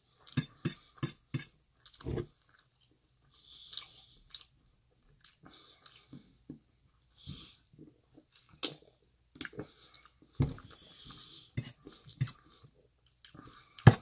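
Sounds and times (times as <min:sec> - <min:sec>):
fork scraping metal bowl: 0:00.3 - 0:01.5, 0:11.6 - 0:12.4
chewing: 0:01.8 - 0:06.3.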